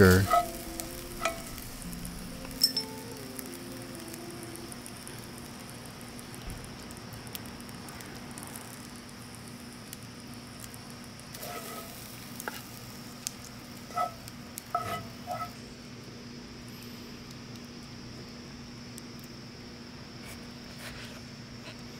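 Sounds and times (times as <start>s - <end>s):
spatula scraping a skillet: 0.0s - 2.6s, 11.4s - 12.7s, 13.8s - 15.6s
steady quiet hiss: 0.0s - 21.9s.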